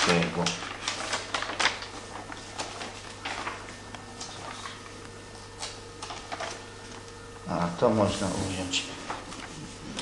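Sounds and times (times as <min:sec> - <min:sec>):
album pages rustling: 0:00.0 - 0:06.6.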